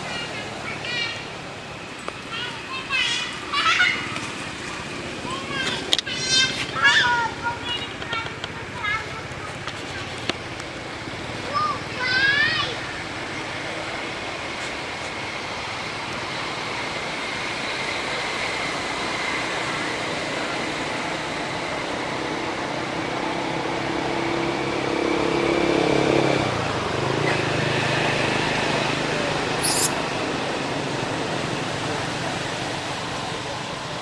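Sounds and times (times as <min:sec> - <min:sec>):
outdoor background noise: 0:00.0 - 0:34.0
brief high squeak: 0:29.6 - 0:30.0.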